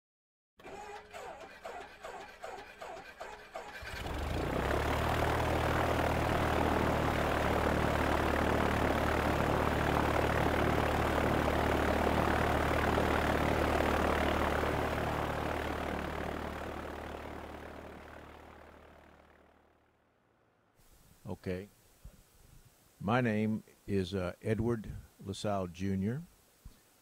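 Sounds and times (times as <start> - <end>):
propeller airplane engine: 0.6 - 20.6.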